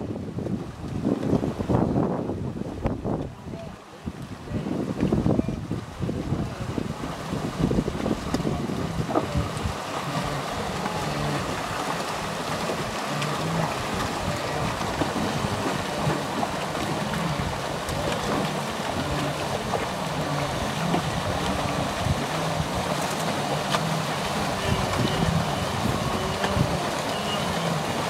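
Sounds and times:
movement through muddy water: 0:00.0 - 0:28.0
herd grunting and lowing: 0:10.0 - 0:28.0.

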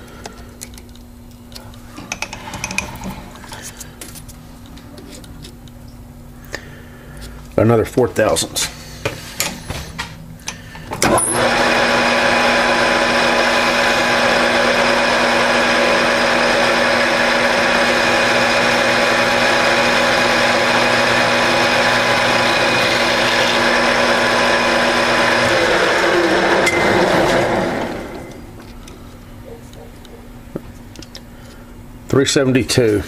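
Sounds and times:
metal lathe gear whine: 0:11.0 - 0:28.6.

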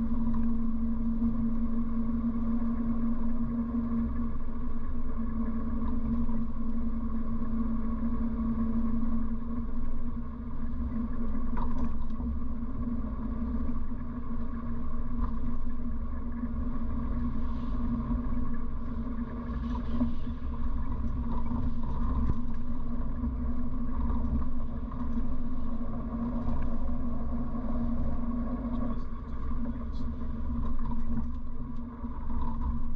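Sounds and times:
low road rumble: 0:09.8 - 0:32.9.

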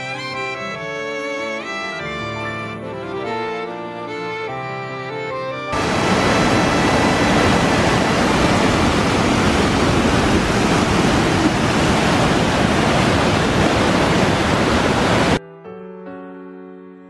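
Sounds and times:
stream rushing over rocks: 0:05.8 - 0:15.4.

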